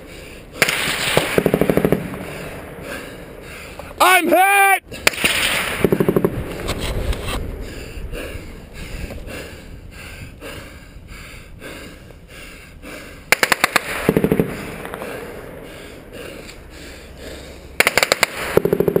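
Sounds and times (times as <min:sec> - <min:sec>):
automatic machine-gun fire: 0:13.3 - 0:14.5, 0:17.8 - 0:19.0.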